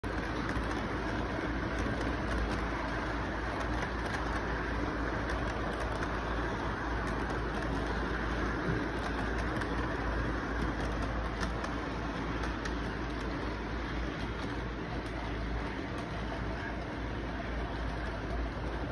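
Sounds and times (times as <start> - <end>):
model train cars rolling on track: 0.0 - 18.9
steady background noise with low hum: 0.0 - 18.9.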